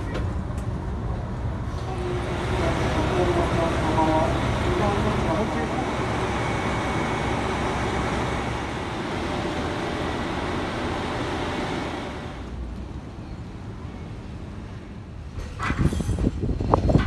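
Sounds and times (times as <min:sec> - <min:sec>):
diesel train idling: 0:00.0 - 0:15.3
station platform din: 0:01.8 - 0:12.5.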